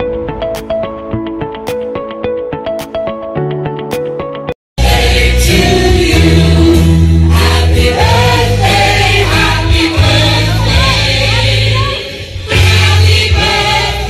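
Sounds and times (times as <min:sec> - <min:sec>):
choir-like group singing: 0:04.8 - 0:14.0
heavy bass line: 0:04.8 - 0:14.0.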